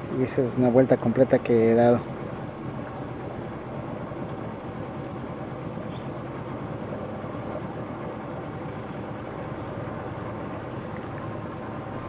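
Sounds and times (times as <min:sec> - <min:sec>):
boat motor droning: 0:00.0 - 0:12.0.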